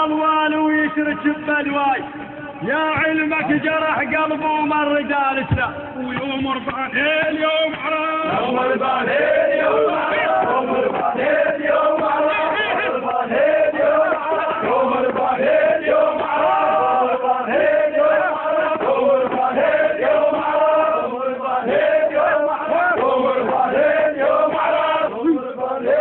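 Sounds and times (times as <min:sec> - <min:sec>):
crowd of men chanting: 0:06.9 - 0:26.0.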